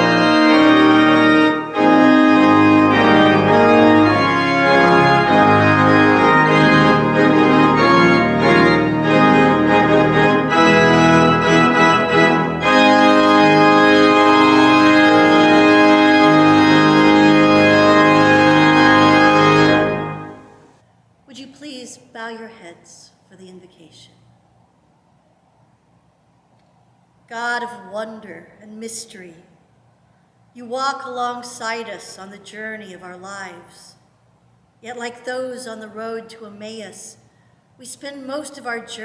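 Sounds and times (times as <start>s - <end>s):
organ playing sustained chords: 0.0s - 20.8s.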